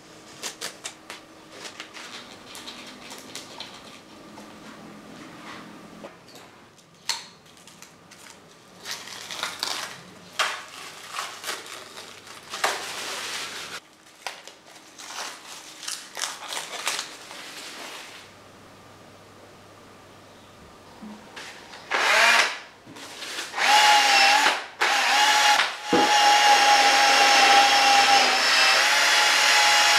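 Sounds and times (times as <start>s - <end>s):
masking tape being peeled: 0.3s - 4.0s, 7.5s - 17.4s.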